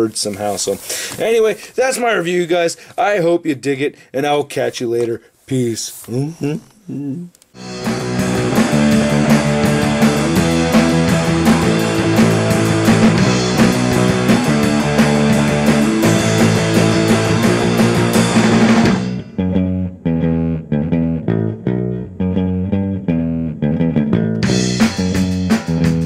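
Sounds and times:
rock music with guitar bass and drums: 7.6 - 26.0.

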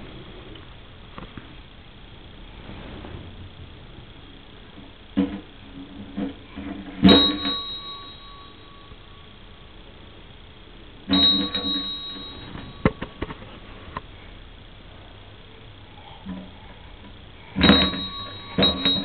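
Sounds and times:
fire engine bell clanging: 7.0 - 9.1, 11.1 - 13.3, 17.6 - 19.0.

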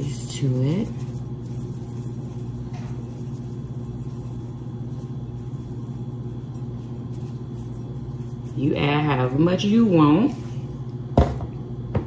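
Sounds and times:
seasoning shaker rustle: 0.0 - 10.9
steady low hum: 0.0 - 12.0.

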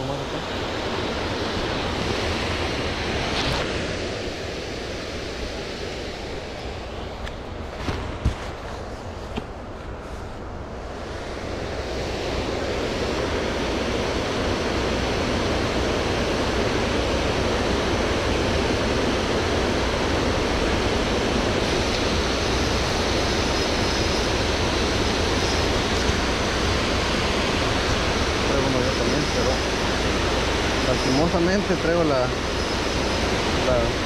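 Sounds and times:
water rushing over spillway: 10.9 - 34.0.

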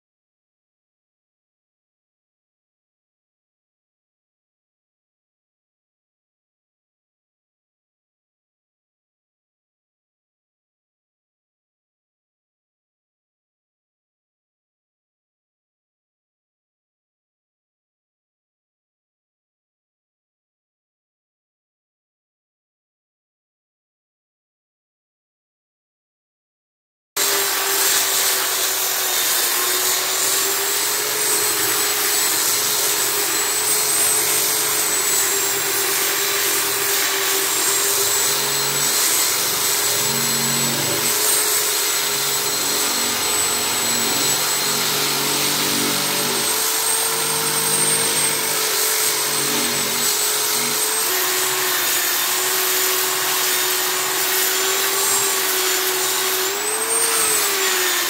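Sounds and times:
power sander whining and rasping: 27.2 - 58.0.

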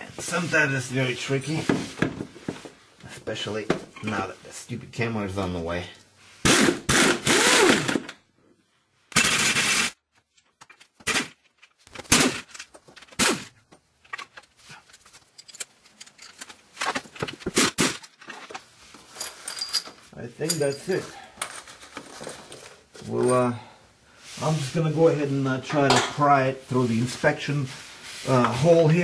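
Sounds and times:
air impact gun hammering: 6.5 - 8.0.

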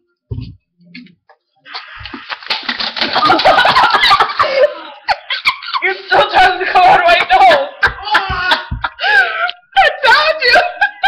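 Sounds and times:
person spluttering fizzing spray: 1.8 - 4.3.

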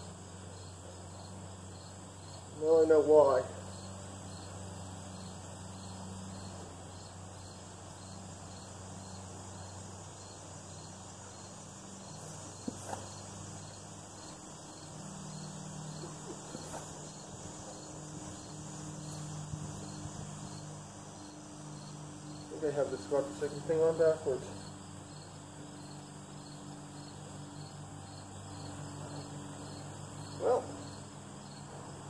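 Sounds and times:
crickets and insects chirping: 0.0 - 32.0.

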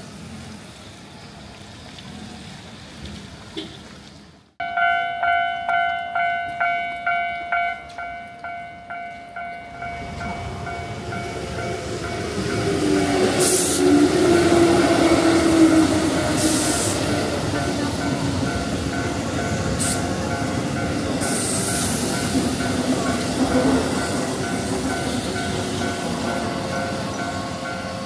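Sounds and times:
train rumble: 0.0 - 28.0
level crossing warning bell: 4.6 - 16.3, 16.9 - 28.0.

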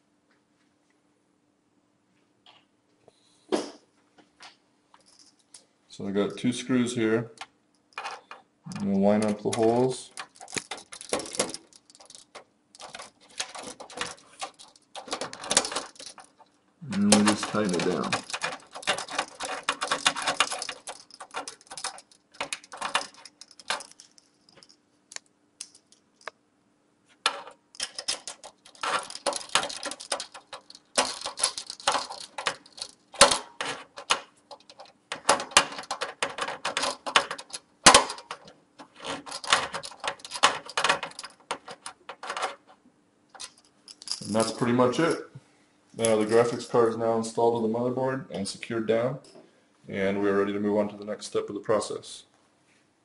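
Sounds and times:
screwdriver clicking and scraping metal: 8.0 - 16.4, 17.0 - 26.3, 27.3 - 42.7.

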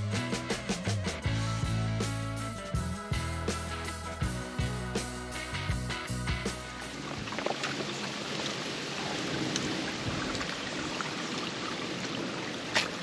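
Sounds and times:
stream water running over stones: 6.7 - 13.0.

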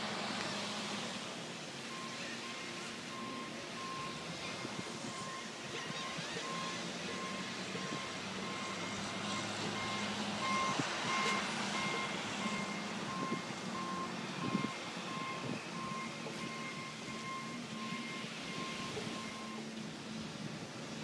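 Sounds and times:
reversing alarm beeping: 1.8 - 19.7
wind noise: 13.0 - 16.0.

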